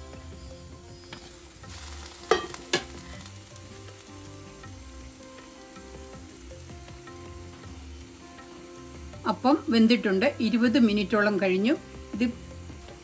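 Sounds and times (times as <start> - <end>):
metal pot lid clanking: 2.2 - 3.2.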